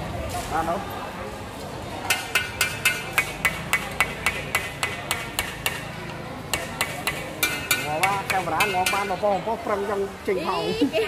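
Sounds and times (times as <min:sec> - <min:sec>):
rapid sharp ringing knocks: 0:02.1 - 0:09.2.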